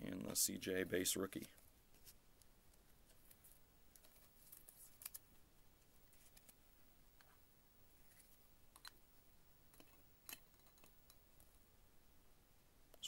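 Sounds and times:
faint plastic rustles: 1.2 - 6.6.

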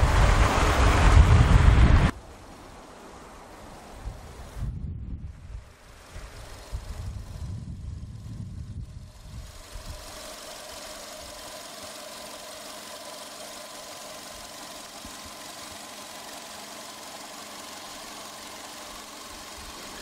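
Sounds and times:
car engine idling: 5.5 - 20.0.

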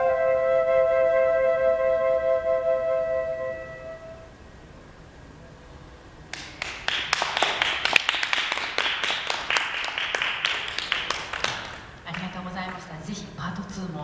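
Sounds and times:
audience applauding: 6.3 - 12.9.

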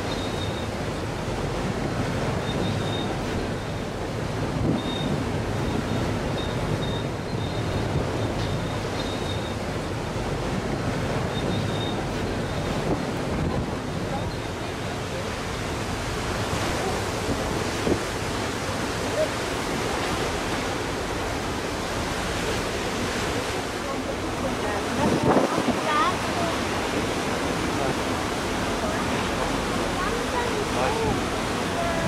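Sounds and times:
sea wash: 0.0 - 32.0
wind buffeting microphone: 24.4 - 32.0.

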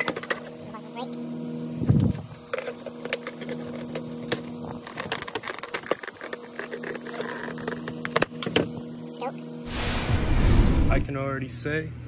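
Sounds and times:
packaging clicks and rustles: 2.6 - 8.1
low hum: 9.7 - 11.4.

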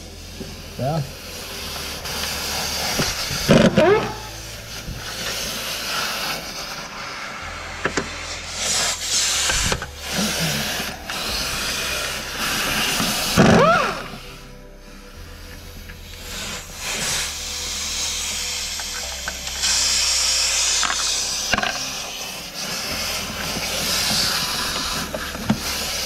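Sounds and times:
short rising whines: 1.2 - 26.0.

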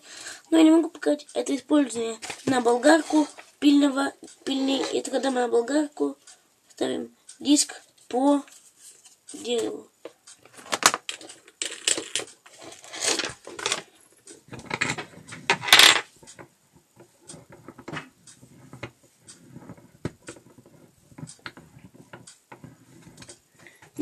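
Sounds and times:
rustling: 7.8 - 9.8
hard objects clinking and clattering: 10.5 - 13.9.

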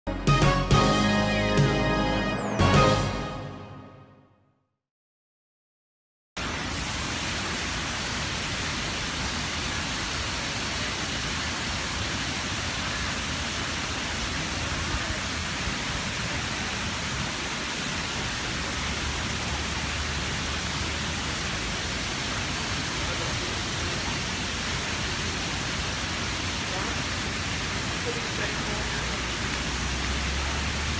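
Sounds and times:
waterfall rushing: 6.4 - 30.9.

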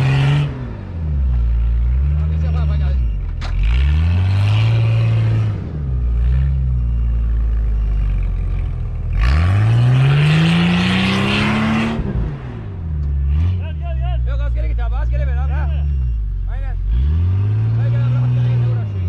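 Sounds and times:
engine revving hard: 0.0 - 0.9, 3.6 - 6.6, 9.1 - 14.0, 16.8 - 19.0
tyres churning through snow: 0.0 - 8.4, 9.0 - 15.8.

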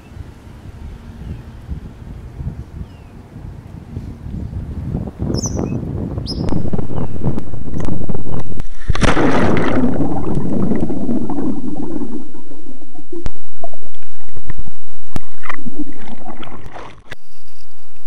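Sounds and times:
seawater rushing underwater: 6.5 - 17.2.

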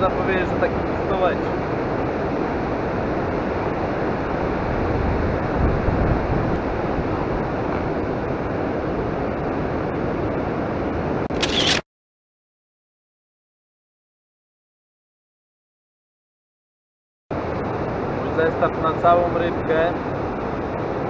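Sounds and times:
wind: 0.0 - 11.8, 17.3 - 21.0
short crackle: 11.3 - 11.8.

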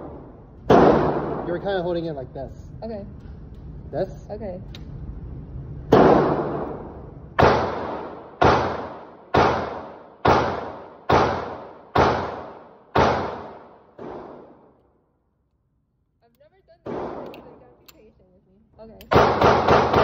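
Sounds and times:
gunshots with echo indoors: 0.0 - 1.9, 5.9 - 15.1, 16.8 - 18.0, 19.0 - 20.0.

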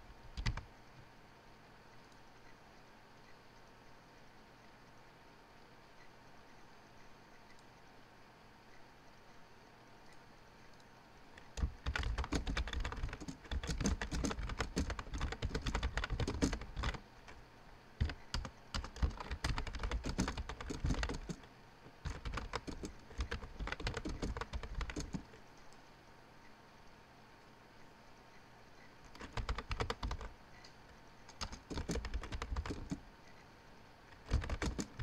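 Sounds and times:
typing on computer keyboard: 0.3 - 0.7, 11.4 - 17.4, 18.0 - 25.4, 29.1 - 30.3, 31.3 - 33.0, 34.1 - 35.0.

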